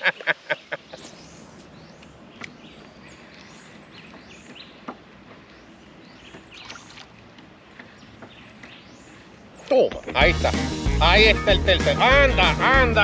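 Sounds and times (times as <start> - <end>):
birds chirping: 0.0 - 13.0
water against kayak hull: 2.4 - 8.8.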